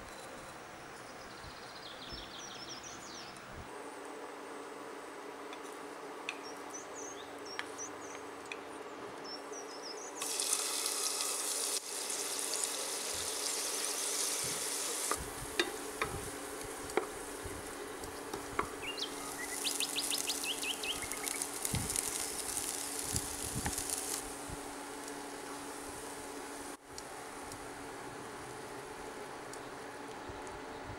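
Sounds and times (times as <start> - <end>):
onion sizzling in pot: 10.2 - 27.6.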